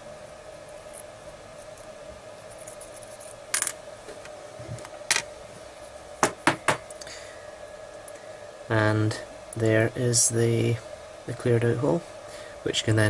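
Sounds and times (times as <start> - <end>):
faint steady hum: 0.0 - 13.0
small pieces clicking on workbench: 3.5 - 3.8.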